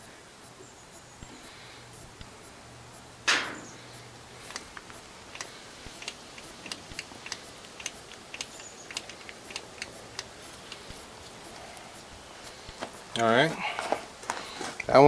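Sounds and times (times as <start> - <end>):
grease gun lever clicking: 4.5 - 10.8.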